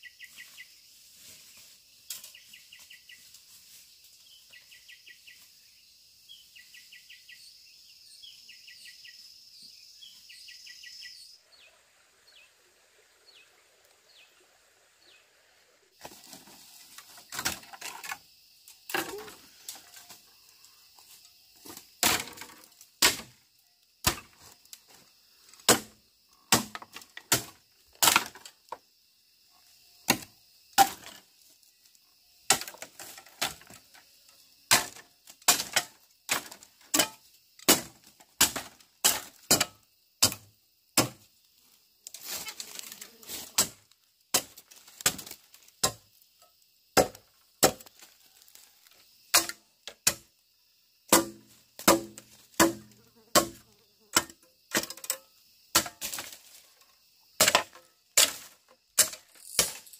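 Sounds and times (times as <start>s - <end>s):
insect drone: 0.0s - 59.9s.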